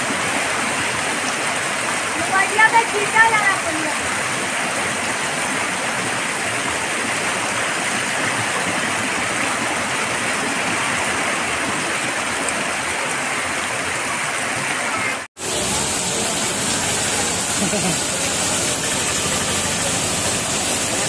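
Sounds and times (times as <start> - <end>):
heavy rain splashing into water: 0.0 - 21.0.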